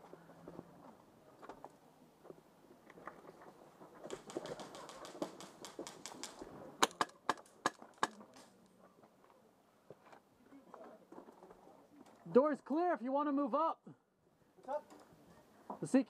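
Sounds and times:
airsoft gun rapid clicks: 4.1 - 8.5.

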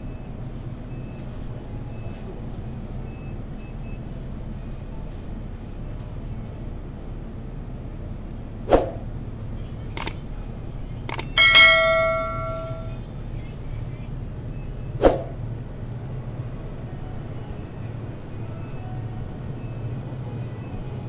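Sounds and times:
steady low hum: 9.2 - 13.1
sharp knocks: 11.1 - 12.9
ringing metallic clang: 11.1 - 13.0.

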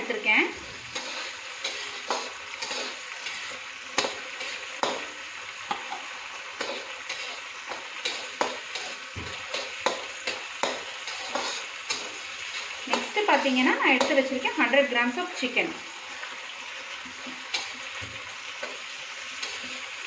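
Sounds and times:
vegetables sizzling in oil: 0.0 - 20.0
metal spatula scraping a pan: 0.7 - 5.1, 5.7 - 14.4.

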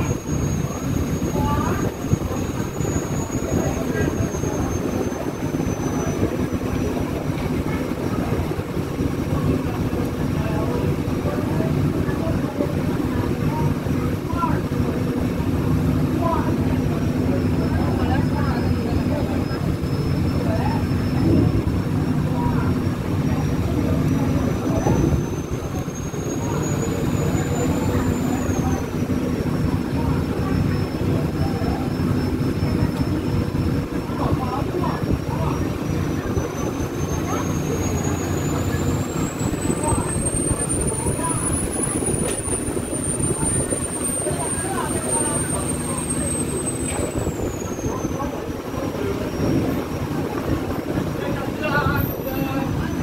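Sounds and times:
boat engine rumbling: 0.0 - 53.0
choppy water rushing: 0.0 - 53.0
wind and water rushing: 19.0 - 32.6.

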